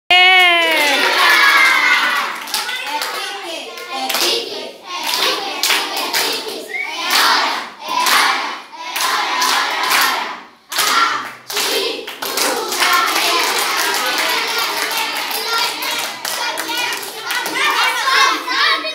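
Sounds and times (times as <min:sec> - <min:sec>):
clapping in rhythm: 0:00.4 - 0:18.4
children singing: 0:00.9 - 0:18.9.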